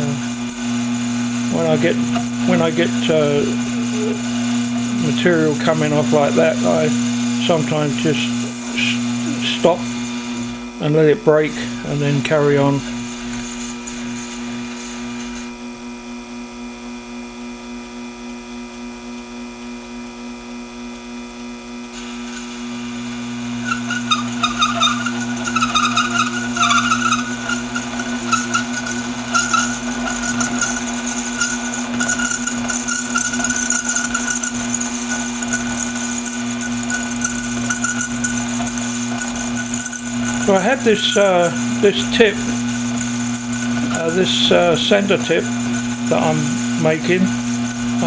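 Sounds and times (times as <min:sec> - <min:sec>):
lathe motor hum: 0:00.0 - 0:16.0, 0:21.7 - 0:48.0
cutting tool squealing and scraping: 0:01.4 - 0:09.8, 0:22.0 - 0:48.0.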